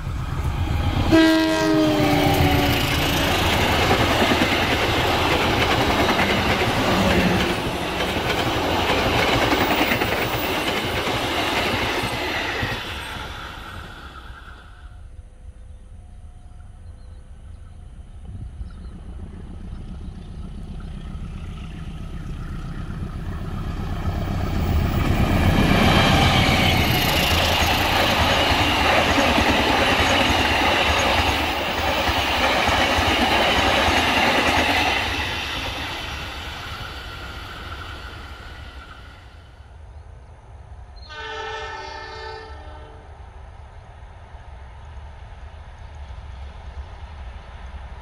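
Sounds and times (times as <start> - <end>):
train wheels on rails: 0.0 - 15.1, 16.2 - 39.8
diesel locomotive approaching: 0.0 - 48.0
train horn: 1.0 - 3.0, 41.0 - 43.2.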